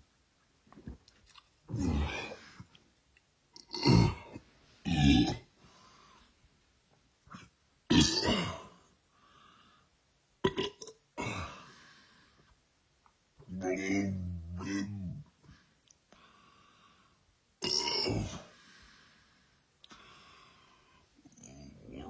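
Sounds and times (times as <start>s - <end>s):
loud throaty burps: 3.6s - 5.5s, 7.9s - 8.7s, 10.4s - 11.6s, 17.6s - 18.4s.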